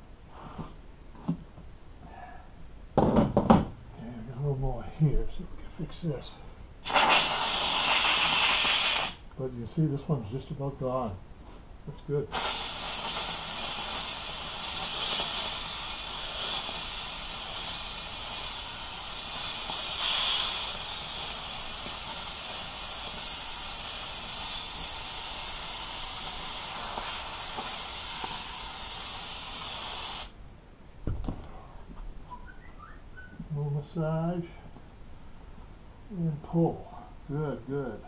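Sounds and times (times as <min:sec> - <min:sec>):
thump: 0:03.0 - 0:03.7, 0:31.0 - 0:31.5
steamer hissing: 0:06.8 - 0:09.2, 0:12.3 - 0:30.4.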